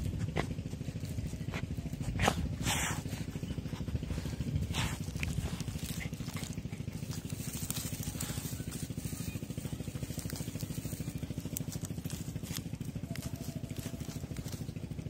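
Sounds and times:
dog digging in dry straw: 0.0s - 15.0s
small engine idling: 0.0s - 15.0s.

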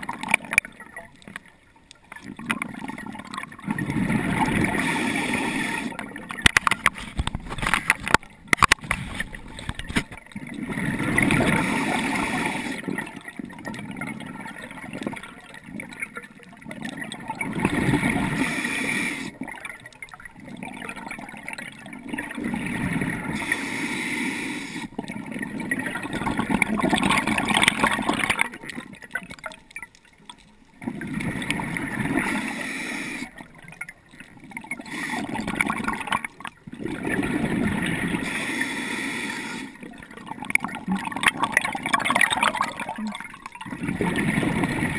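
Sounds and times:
diver exhaling bubbles underwater: 2.3s - 6.2s, 10.4s - 15.9s, 16.8s - 19.6s, 25.0s - 29.5s, 30.8s - 33.8s, 34.4s - 38.4s, 39.8s - 44.9s.

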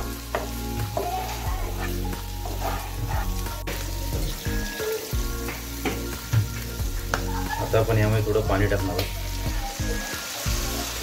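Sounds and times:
background music: 0.0s - 11.0s
liver sizzling in a pan: 0.0s - 11.0s
spatula scraping a pan: 0.3s - 3.7s.

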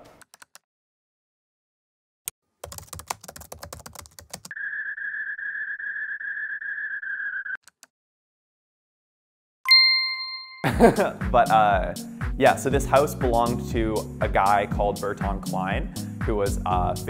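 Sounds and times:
computer keyboard typing: 2.6s - 4.5s.

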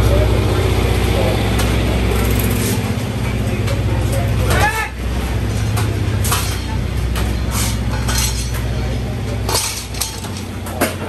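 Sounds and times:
low machinery hum: 0.0s - 11.0s
metal parts clinking and rattling: 5.6s - 11.0s.

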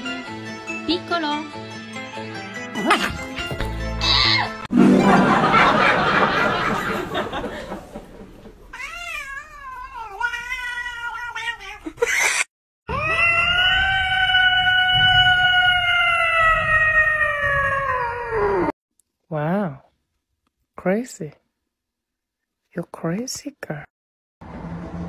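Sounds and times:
cat yowling: 8.7s - 18.7s
long cat meow: 12.9s - 18.7s.

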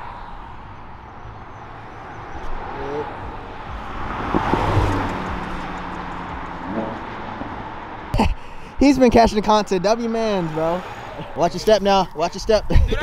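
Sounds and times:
car driving past: 0.0s - 8.1s, 9.9s - 11.4s.

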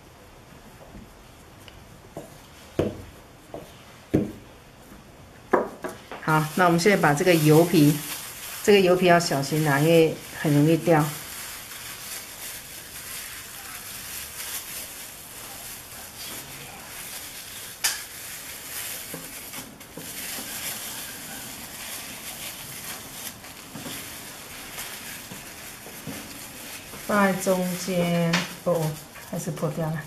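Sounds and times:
cling film rustling and crinkling: 6.0s - 30.0s.

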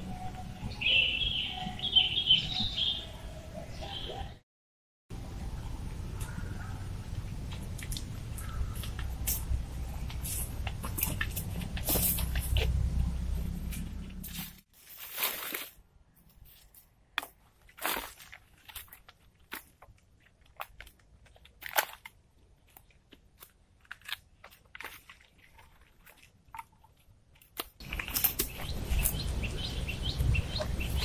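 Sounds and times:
sticks snapping and cracking: 27.4s - 29.2s.

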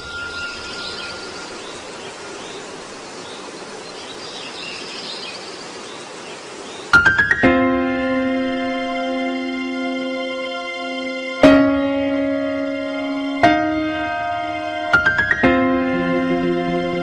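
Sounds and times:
faint chirping: 0.0s - 7.5s
outdoor ambient hiss: 0.0s - 17.0s.

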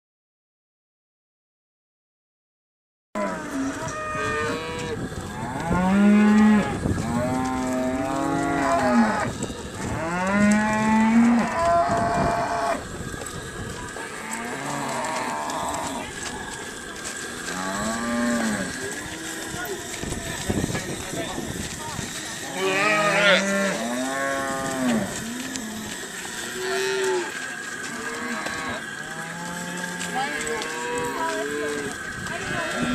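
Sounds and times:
calves mooing: 3.2s - 12.9s, 14.1s - 16.5s, 17.4s - 19.8s, 22.0s - 32.9s.

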